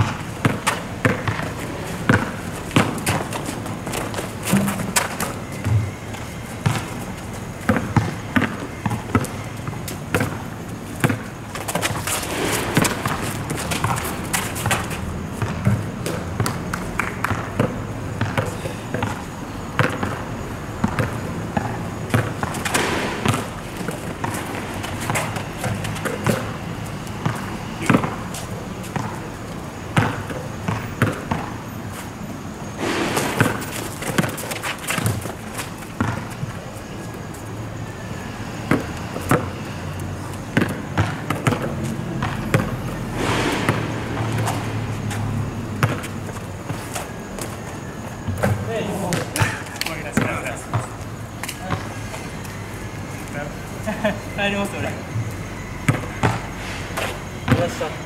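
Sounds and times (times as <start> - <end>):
basketball bouncing on asphalt: 0.0 - 52.7, 54.9 - 58.0
players' voices: 21.1 - 30.6, 48.4 - 52.2, 53.2 - 55.1, 57.4 - 58.0.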